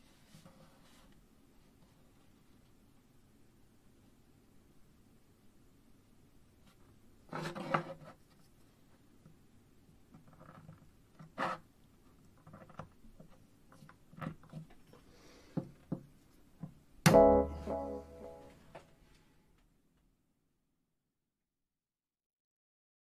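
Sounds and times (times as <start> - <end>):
loud ringing note: 17.1 - 18.6.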